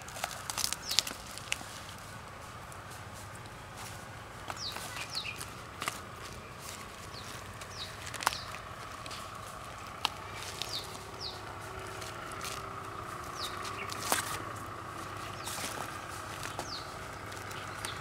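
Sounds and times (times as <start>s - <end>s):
plant sheaths rustling: 0.0s - 18.0s
steady hum: 0.0s - 18.0s
bird chirps: 3.8s - 18.0s.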